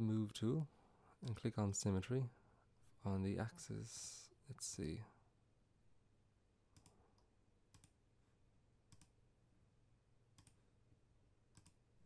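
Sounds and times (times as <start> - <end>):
computer mouse clicks: 6.7 - 8.0, 8.9 - 9.2, 10.4 - 10.6, 11.5 - 11.8.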